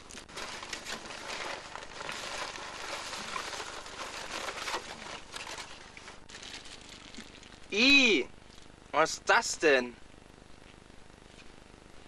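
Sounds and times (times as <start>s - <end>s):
paper bag and wrappers rustling: 0.0s - 7.8s.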